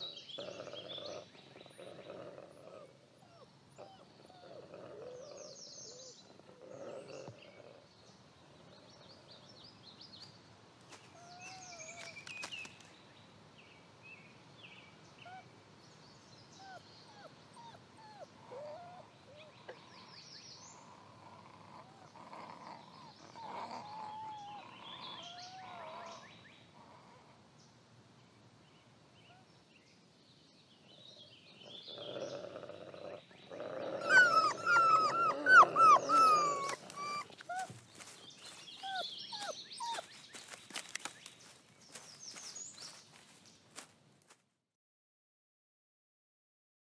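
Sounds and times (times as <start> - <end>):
wolf growling and yelping: 0.0 - 7.9, 15.2 - 27.4, 31.5 - 41.0
wolf pups whining and squeaking: 2.7 - 5.5, 15.2 - 15.5, 16.5 - 19.6, 21.8 - 26.2, 33.5 - 41.2.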